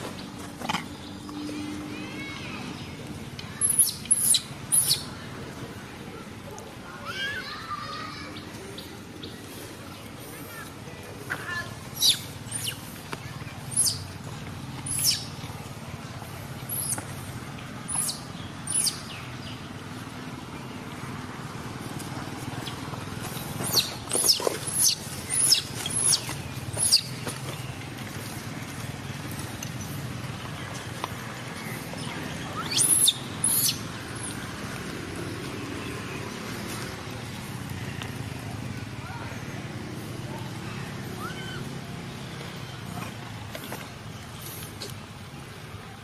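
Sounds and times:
young monkey squealing: 0:03.6 - 0:05.1, 0:12.0 - 0:12.9, 0:14.9 - 0:15.3, 0:23.6 - 0:27.1, 0:32.6 - 0:33.8.

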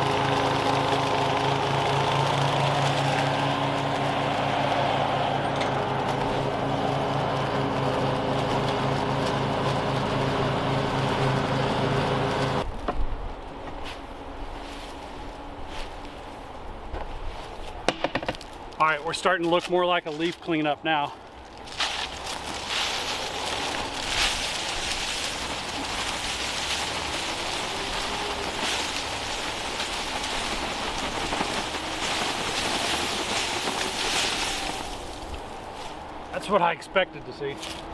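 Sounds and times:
dry leaves rustling from bag: 0:00.0 - 0:05.1, 0:21.3 - 0:36.3
lawn mower engine running: 0:00.0 - 0:12.7, 0:21.5 - 0:36.8.

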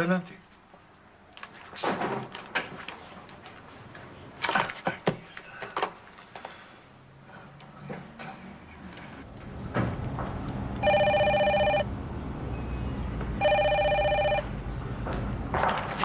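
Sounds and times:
telephone ringing: 0:10.8 - 0:11.9, 0:13.4 - 0:14.6.

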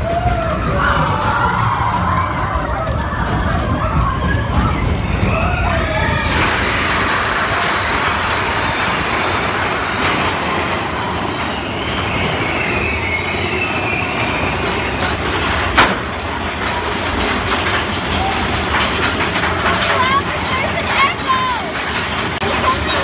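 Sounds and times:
ride vehicle rushing rumble: 0:00.0 - 0:23.0
faint high squeals: 0:07.5 - 0:15.8.

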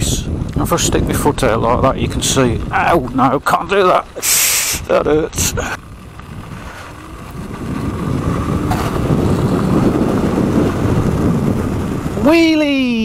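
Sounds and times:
wind buffeting microphone: 0:00.0 - 0:13.0
tyres crunching on gravel: 0:02.1 - 0:11.0.

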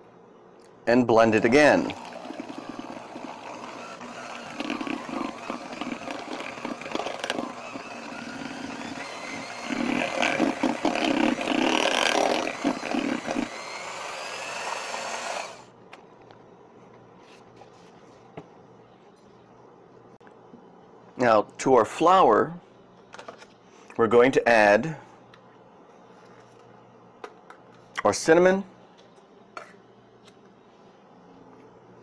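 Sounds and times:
electric hand mixer running: 0:01.7 - 0:15.7.

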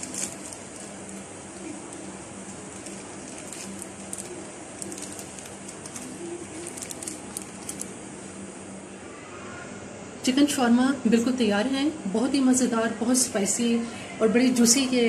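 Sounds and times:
plastic wrap and paper rustling: 0:00.0 - 0:08.1
low room hum: 0:00.0 - 0:15.0.

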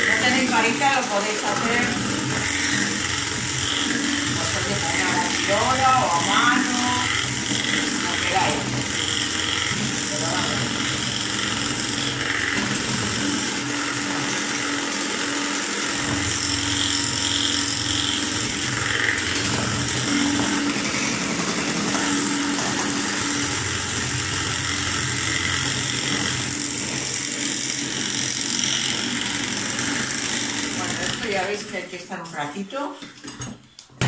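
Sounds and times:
electric hand mixer whisking: 0:00.0 - 0:34.0.

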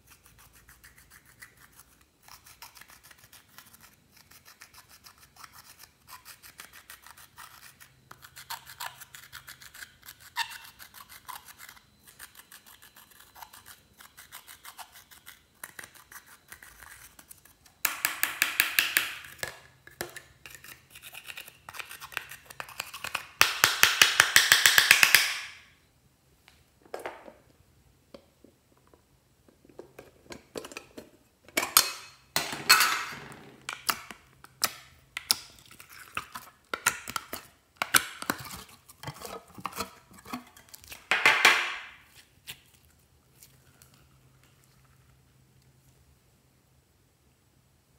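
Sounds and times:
tool scratching powder in a palette: 0:00.0 - 0:17.6.

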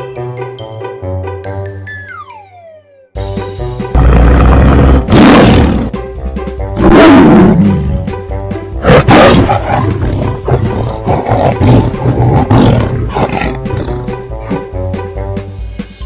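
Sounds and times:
background music: 0:00.0 - 0:16.0
tiger roaring: 0:04.0 - 0:05.9, 0:06.8 - 0:08.0, 0:08.8 - 0:14.1.

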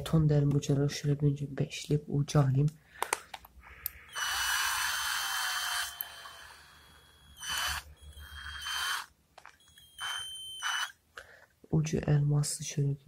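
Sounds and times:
cordless drill motor whine: 0:04.1 - 0:11.0.

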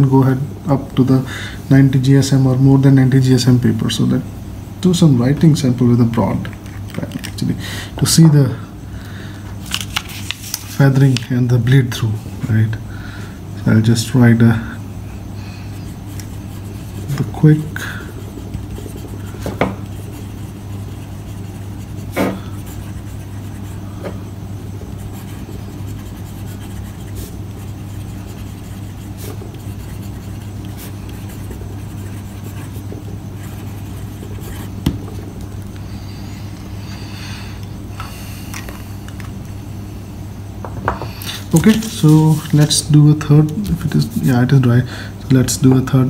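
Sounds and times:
low background hum: 0:00.0 - 0:46.0
fountain pen scratching on paper: 0:15.7 - 0:23.9, 0:24.6 - 0:35.0.

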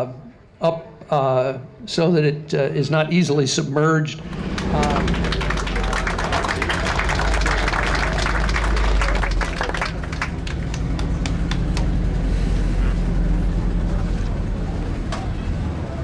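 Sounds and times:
crowd noise: 0:03.8 - 0:16.0
people clapping: 0:04.2 - 0:12.2
jeep engine driving past: 0:04.2 - 0:16.0.

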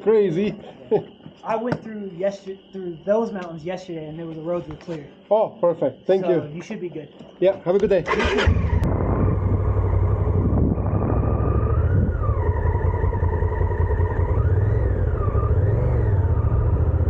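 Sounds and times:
motorcycle engine rumbling: 0:07.0 - 0:17.0.

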